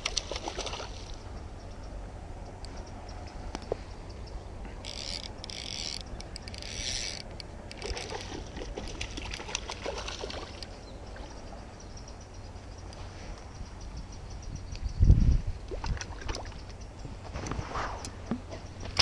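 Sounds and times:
running stream water: 0:04.6 - 0:11.7
fly reel ratchet buzzing: 0:04.8 - 0:07.9.

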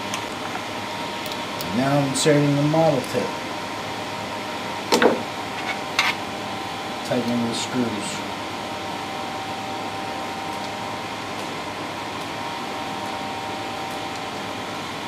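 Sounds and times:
printer fan hum: 0:00.0 - 0:15.0.

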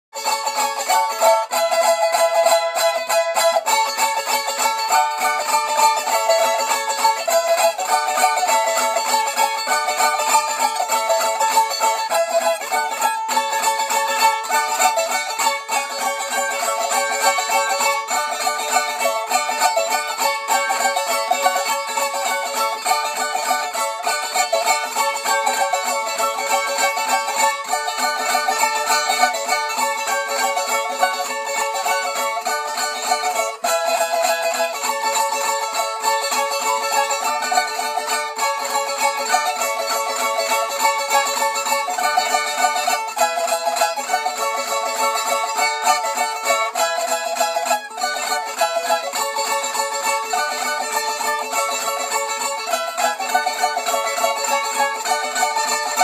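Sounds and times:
cavaquinho strummed fast: 0:00.1 - 0:56.0.

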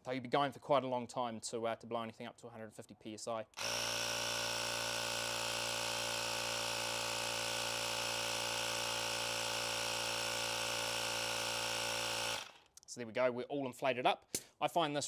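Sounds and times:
tyre inflator compressor pumping: 0:03.6 - 0:12.7.

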